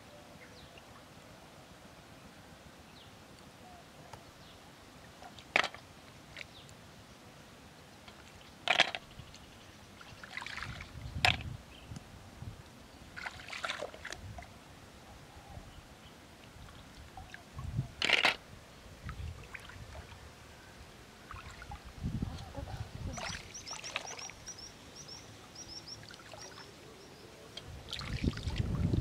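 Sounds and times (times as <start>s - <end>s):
water sloshing and dripping: 8.1s - 11.5s, 13.2s - 14.6s, 19.0s - 20.2s, 21.2s - 24.6s, 25.6s - 26.8s, 27.6s - 29.0s
bird chirping: 23.0s - 27.5s.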